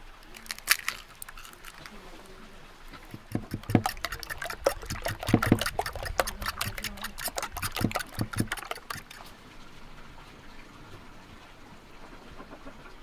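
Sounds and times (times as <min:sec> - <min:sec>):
fork beating eggs in a bowl: 0:03.0 - 0:09.3.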